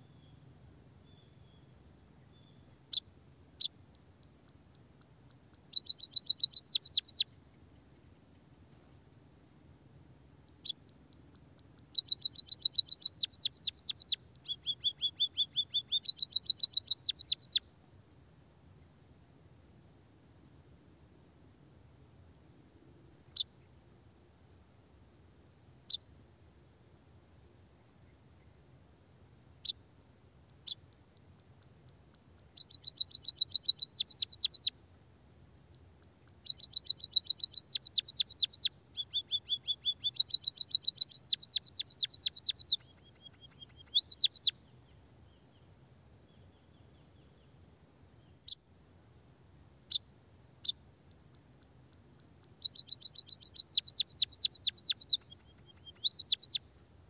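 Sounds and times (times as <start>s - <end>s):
faint high hum: 0.0s - 40.2s
bird trilling: 5.7s - 7.2s, 12.0s - 17.6s, 32.6s - 34.7s, 36.5s - 44.5s, 52.2s - 56.6s.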